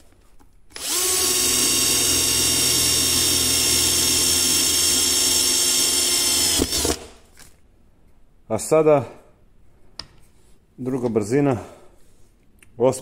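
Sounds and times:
cordless drill drilling into steel: 0:00.7 - 0:07.0.

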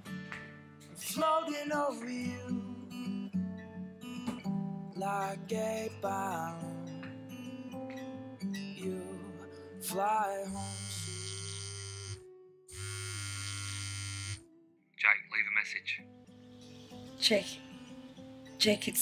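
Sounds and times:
acoustic guitar plucked notes: 0:00.0 - 0:12.7
steady buzzing tone: 0:10.5 - 0:14.5.

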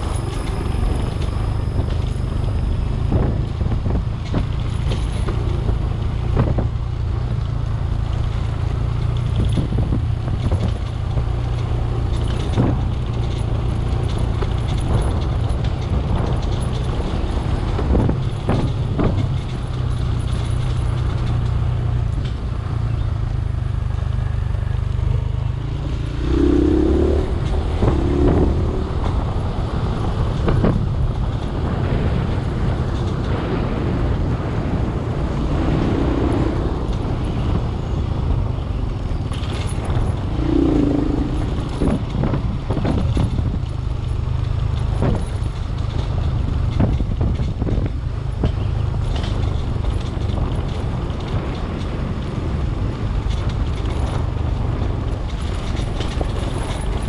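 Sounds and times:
clatters and knocks: 0:00.0 - 0:23.0, 0:39.0 - 0:52.3, 0:53.1 - 0:57.0
vehicle engine drone: 0:00.0 - 0:57.0
short low tones: 0:25.8 - 0:29.4, 0:40.2 - 0:42.1.

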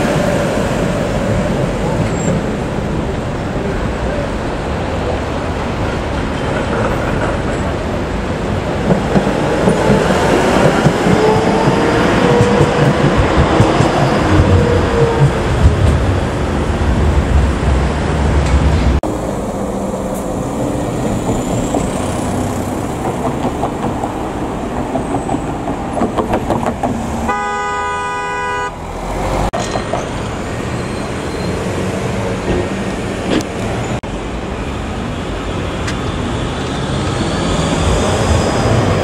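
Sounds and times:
tram rolling by: 0:00.0 - 0:27.3, 0:28.7 - 0:39.0
city street traffic: 0:00.0 - 0:39.0
vehicle horn: 0:27.3 - 0:28.8.

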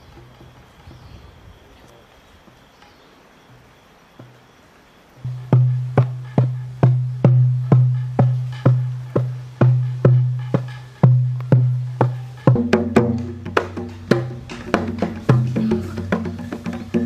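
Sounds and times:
busier percussion: 0:00.0 - 0:01.6, 0:05.2 - 0:17.0
drum beaten in slow pulse: 0:05.3 - 0:17.0.

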